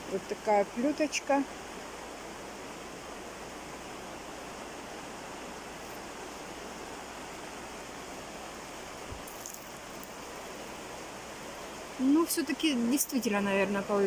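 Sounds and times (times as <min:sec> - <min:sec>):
background hiss: 0:00.0 - 0:14.0
faint rustle: 0:05.6 - 0:06.5, 0:09.0 - 0:10.6.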